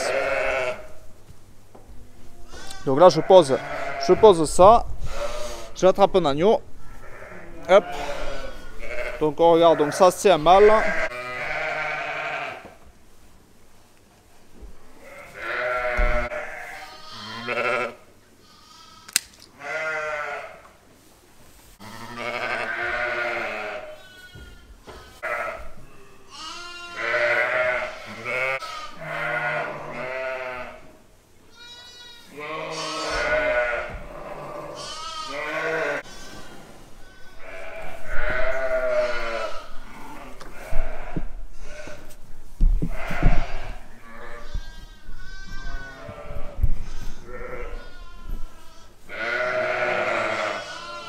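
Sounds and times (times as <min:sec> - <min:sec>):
sheep and lambs bleating: 0:00.0 - 0:01.0, 0:02.3 - 0:05.8, 0:06.8 - 0:12.8, 0:15.0 - 0:20.7, 0:21.8 - 0:42.2, 0:42.9 - 0:51.0
sharp click: 0:19.1 - 0:19.5.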